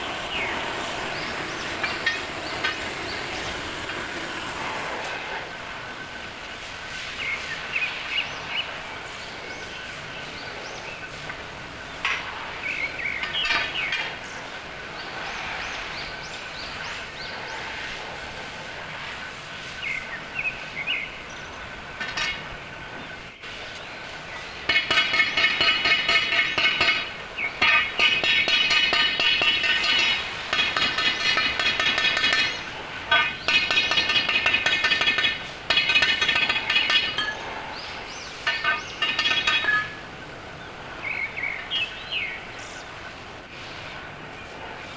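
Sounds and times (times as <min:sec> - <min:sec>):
workshop background noise: 0:01.2 - 0:05.2, 0:24.6 - 0:37.6, 0:38.4 - 0:40.2
hammer striking steel tube: 0:24.7 - 0:37.4, 0:38.4 - 0:40.0.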